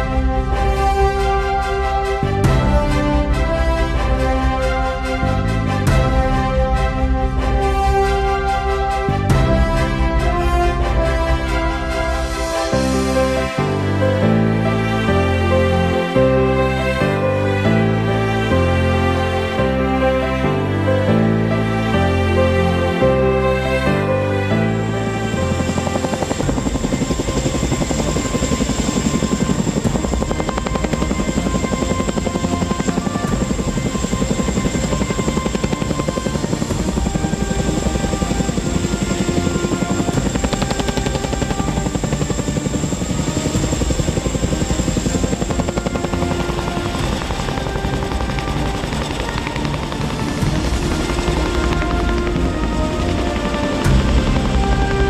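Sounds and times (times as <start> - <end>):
background music: 0.0 - 55.0
helicopter rotors chopping: 24.2 - 55.0.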